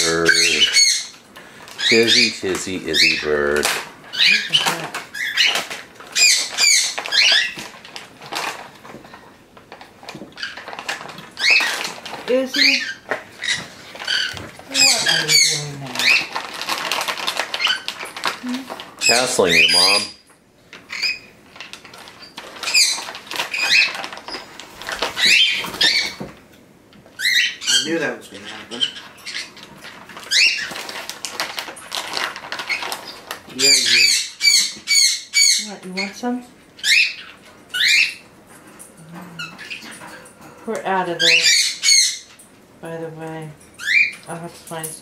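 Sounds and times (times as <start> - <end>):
parrot squeaky chirps: 0.0 - 1.2, 1.8 - 3.4, 4.1 - 7.7, 11.4 - 16.4, 17.5 - 18.0, 19.0 - 20.3, 20.9 - 21.4, 22.2 - 24.5, 25.2 - 26.2, 27.2 - 29.6, 30.2 - 30.9, 32.7 - 36.2, 36.8 - 38.3, 39.4 - 39.9, 41.2 - 42.4, 43.8 - 44.3
foil bag crackling: 1.4 - 20.0, 21.5 - 26.2, 29.5 - 34.2.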